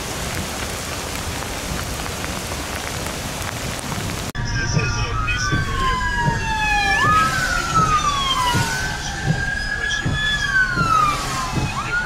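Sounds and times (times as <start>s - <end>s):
wind-driven rain: 0.0s - 12.0s
emergency siren wailing: 4.4s - 12.0s.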